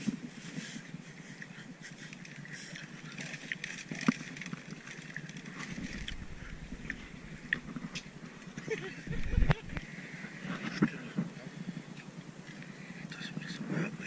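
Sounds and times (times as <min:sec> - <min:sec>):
sea and breeze hiss: 0:00.0 - 0:14.0
low rumble: 0:05.7 - 0:09.8.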